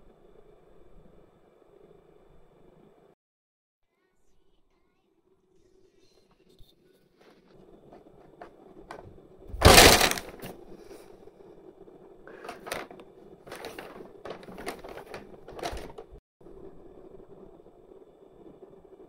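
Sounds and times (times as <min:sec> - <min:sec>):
paper bag crinkling and rustling: 0:08.9 - 0:11.0, 0:12.3 - 0:16.2.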